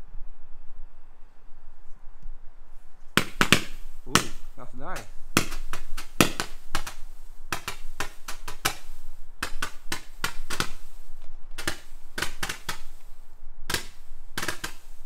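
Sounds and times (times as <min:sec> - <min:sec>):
roman candle popping: 0:03.2 - 0:15.0.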